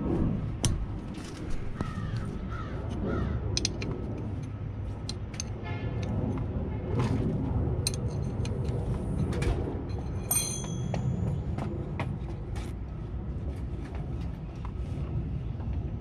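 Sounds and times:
steady low rumble: 0:00.0 - 0:16.0
ringing metal clink: 0:10.2 - 0:11.3.

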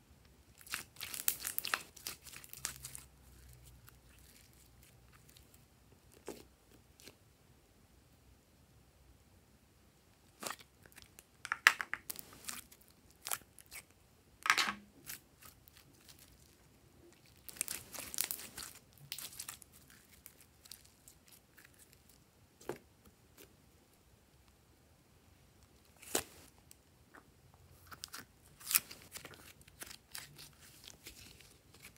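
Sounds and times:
crinkly tearing sound: 0:00.6 - 0:05.4, 0:17.2 - 0:22.1, 0:27.8 - 0:31.9
sticky slime crackling: 0:00.6 - 0:07.2, 0:10.4 - 0:13.9, 0:15.0 - 0:22.8, 0:27.8 - 0:31.9.

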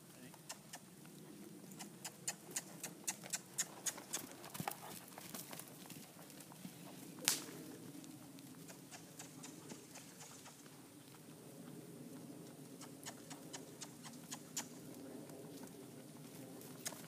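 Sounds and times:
horse hoofbeats on sand: 0:02.5 - 0:07.0
sharp crack: 0:07.2 - 0:07.6.

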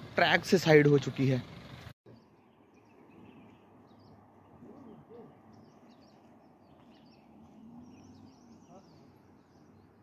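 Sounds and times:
bird chirps: 0:02.1 - 0:10.0.

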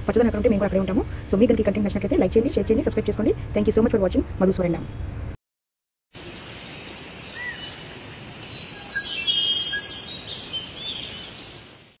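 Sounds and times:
steady background hiss: 0:06.2 - 0:12.0
birds chirping and whistling: 0:06.9 - 0:07.8, 0:08.5 - 0:11.6.

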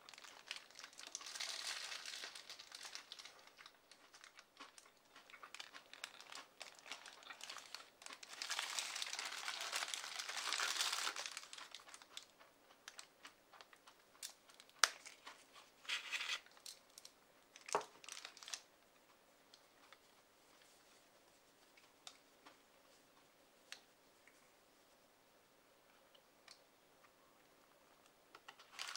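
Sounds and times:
paper food wrapper crinkling: 0:00.0 - 0:12.3, 0:12.9 - 0:18.7, 0:28.4 - 0:28.9.

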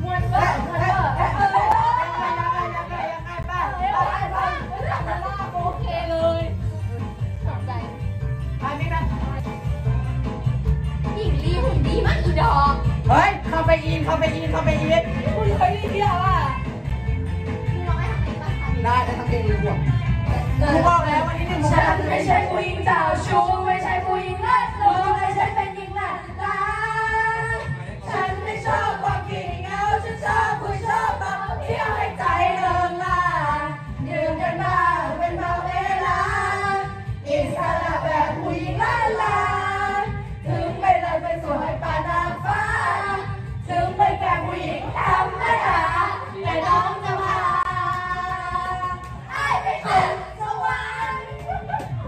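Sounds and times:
girls singing karaoke: 0:00.0 - 0:52.0
pop backing track: 0:00.0 - 0:52.0.

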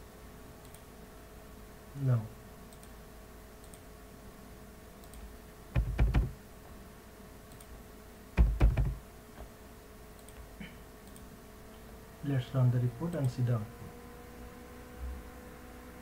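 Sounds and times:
computer keyboard typing: 0:05.8 - 0:06.4, 0:08.4 - 0:09.0.

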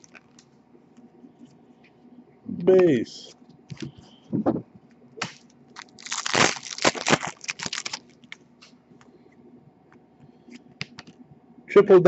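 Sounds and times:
foil wrapper crinkling and tearing: 0:00.0 - 0:00.4, 0:05.2 - 0:08.4.

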